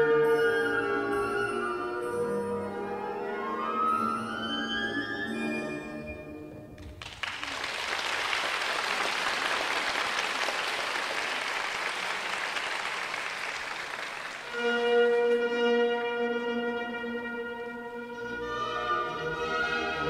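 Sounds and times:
orchestral music with held notes: 0.0 - 6.8, 14.5 - 20.0
audience applauding: 6.8 - 14.8.

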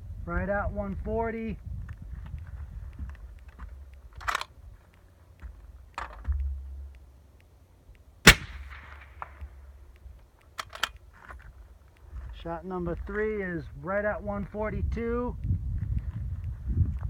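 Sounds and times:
quick clicks: 1.9 - 12.2
suppressed rifle shot with echo: 8.2 - 9.8.

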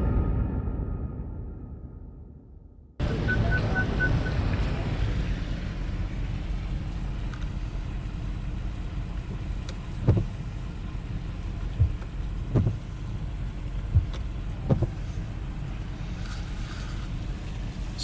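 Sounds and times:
car engine and tyres rumbling: 3.0 - 18.0
high beeps: 3.2 - 4.4
dull low thumps: 9.2 - 10.4, 11.6 - 13.0, 13.8 - 15.1.

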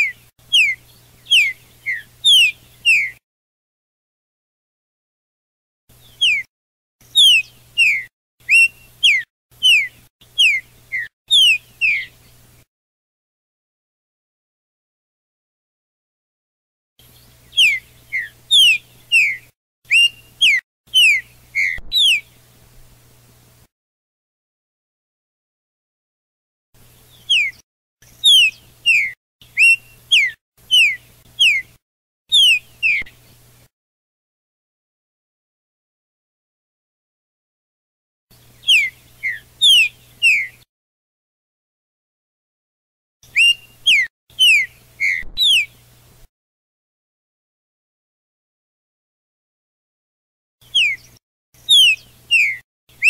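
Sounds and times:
songbird whistled song: 0.0 - 3.2, 5.9 - 12.6, 17.0 - 22.5, 26.8 - 33.4, 38.3 - 40.7, 43.2 - 46.0, 50.6 - 53.0.

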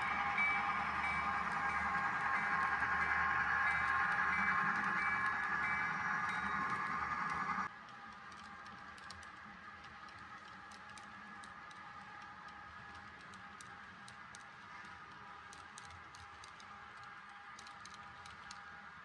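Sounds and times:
model train cars rolling: 0.0 - 19.0
wheels clicking on rails: 0.0 - 19.0.

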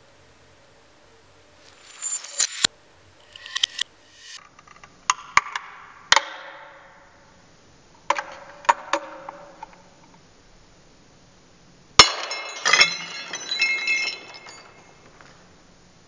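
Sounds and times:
knife striking glass platter: 1.6 - 4.4.

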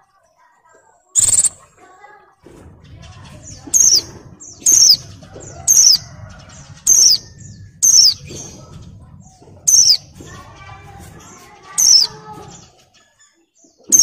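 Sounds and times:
soft bird chirps: 1.1 - 1.8, 2.8 - 14.0
bird short high falling calls: 1.2 - 1.6.

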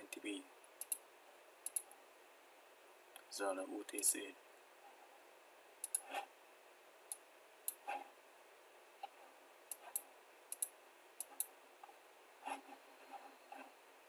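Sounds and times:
faint steady hiss: 0.0 - 14.0
computer mouse clicking: 0.8 - 1.0, 1.6 - 2.0, 5.8 - 6.3, 7.1 - 8.0, 9.0 - 13.7.

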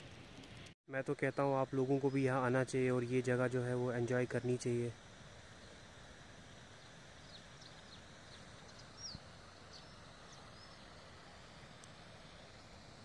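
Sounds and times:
faint steady hiss: 0.0 - 13.0
small birds chirping: 5.5 - 13.0.

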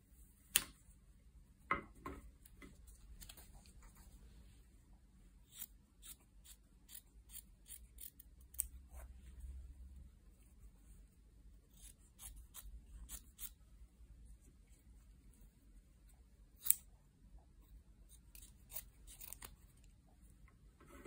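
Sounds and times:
scissors snipping cloth: 5.5 - 9.1, 11.7 - 13.6, 16.6 - 16.9, 18.1 - 19.9.

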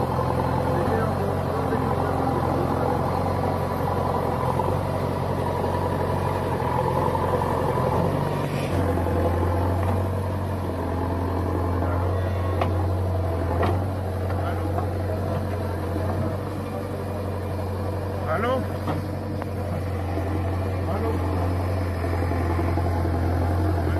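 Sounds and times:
diesel engines droning: 0.0 - 23.9.

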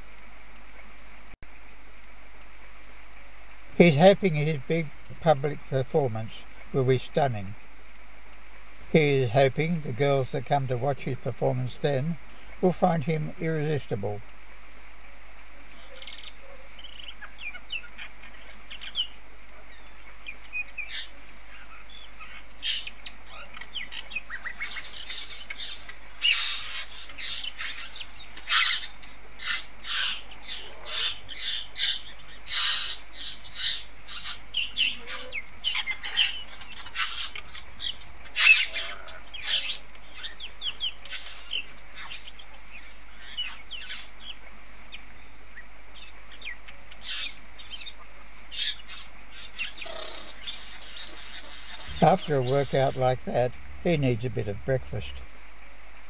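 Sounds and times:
bird calls and clicks: 15.8 - 52.9.

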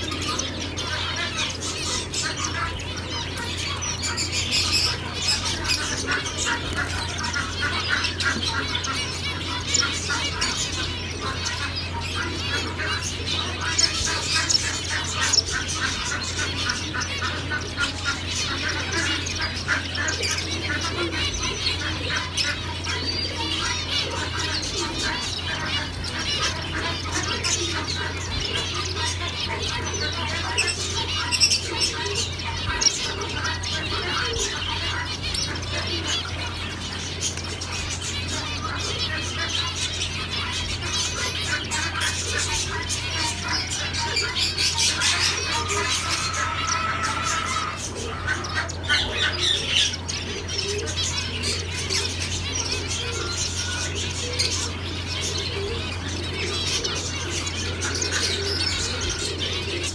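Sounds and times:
finches calling: 0.0 - 59.9.

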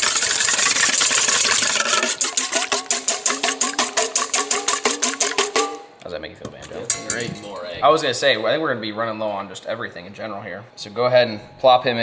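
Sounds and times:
whisk scraping a metal bowl: 0.0 - 5.7.

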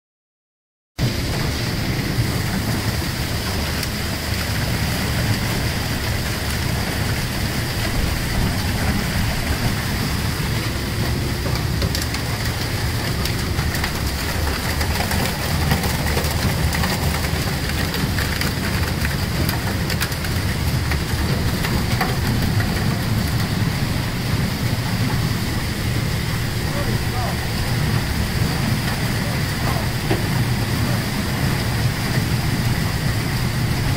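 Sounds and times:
steady high whine: 1.0 - 15.2
boat engine hum: 1.0 - 33.9
heavy rain on boat deck: 1.0 - 33.9.

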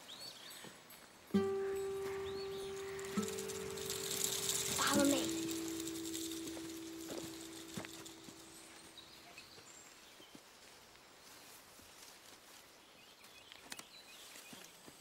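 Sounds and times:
footsteps through undergrowth: 1.8 - 15.0.

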